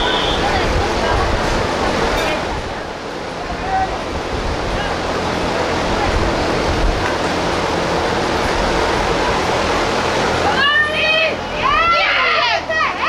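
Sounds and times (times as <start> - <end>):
wind buffeting microphone: 0.0 - 10.4
faint voices: 0.0 - 13.0.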